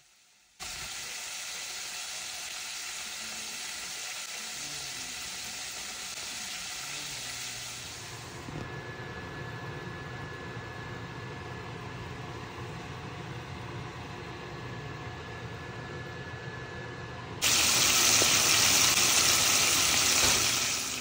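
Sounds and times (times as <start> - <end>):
chicken deep-frying in oil: 0.0 - 8.5, 17.4 - 21.0
low hum with high tone: 3.0 - 18.9.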